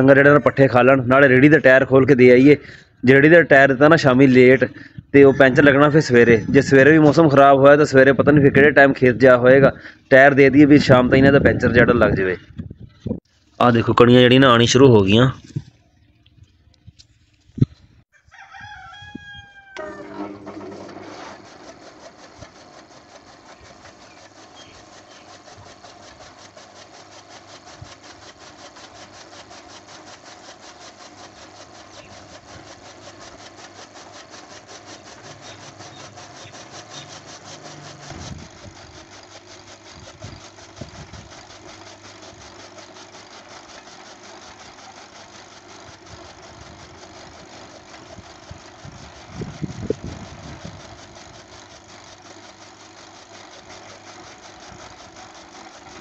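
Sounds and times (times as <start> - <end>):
chaff cutter motor humming: 0.0 - 56.0
blades chopping fodder: 19.8 - 56.0.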